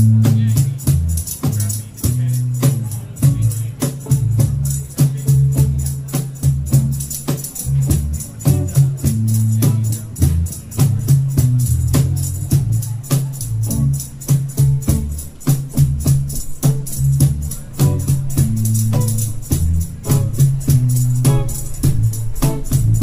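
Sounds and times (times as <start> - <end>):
bass line: 0.0 - 23.0
cajon and cymbal hits: 0.0 - 23.0
electric guitar: 17.7 - 23.0.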